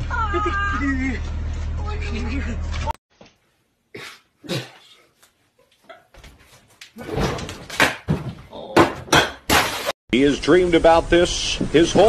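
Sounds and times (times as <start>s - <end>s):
scuffle of thumps and scraping: 6.2s - 8.5s.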